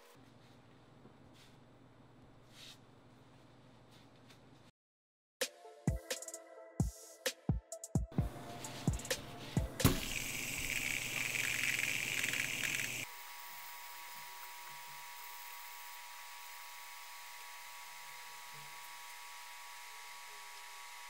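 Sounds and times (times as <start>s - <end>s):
fidget spinner bearing whirring: 9.9s - 13.1s.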